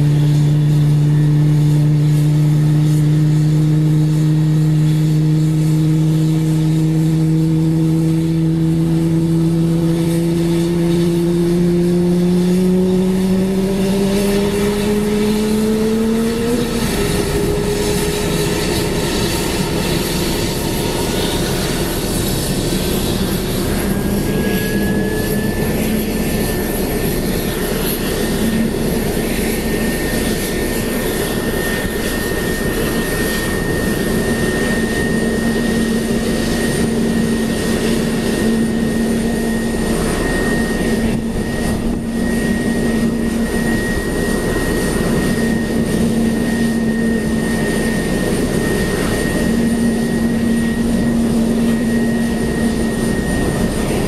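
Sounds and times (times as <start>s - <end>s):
jet engine whine spooling up: 0.0s - 54.0s
low hum rising in pitch: 0.0s - 54.0s
rough engine noise: 0.0s - 54.0s.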